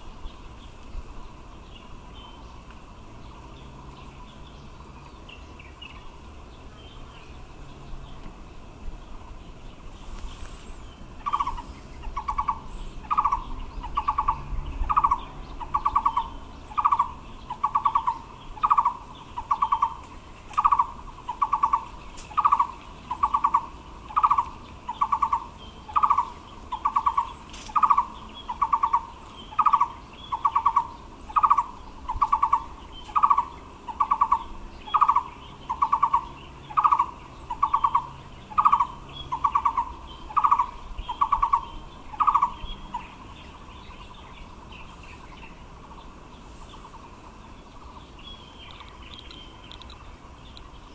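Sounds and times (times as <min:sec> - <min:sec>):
barbet singing pulsed notes: 0:10.7 - 0:50.9.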